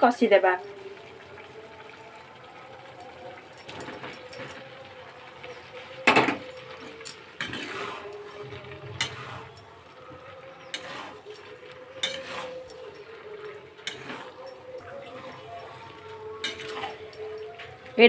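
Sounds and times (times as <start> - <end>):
spoon scraping metal pan: 6.1 - 18.0.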